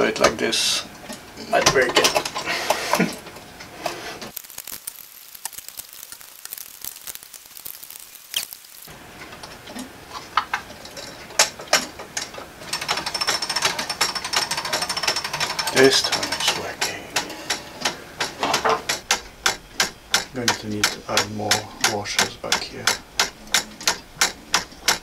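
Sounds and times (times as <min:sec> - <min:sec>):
rapid clicking of clock escapement: 0:11.4 - 0:25.0
plastic clock parts clicking: 0:18.9 - 0:25.0.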